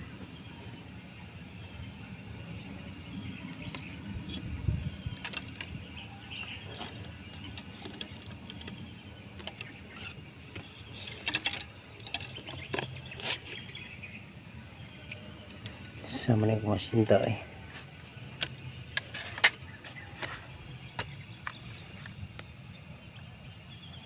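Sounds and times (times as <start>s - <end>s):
steady low rumble: 0.0s - 10.9s.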